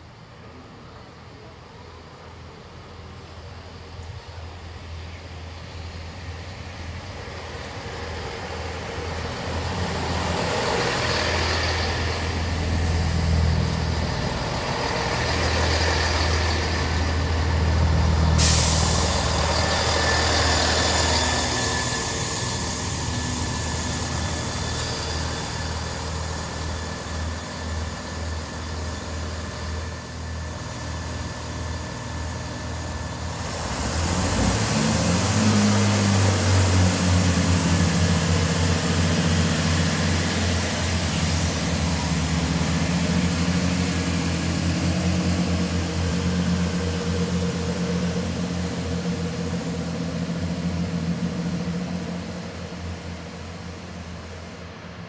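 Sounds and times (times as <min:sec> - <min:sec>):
diesel train engine hum: 0:00.0 - 0:55.0
train wheels on rails: 0:01.4 - 0:55.0
sudden hiss: 0:18.2 - 0:25.4.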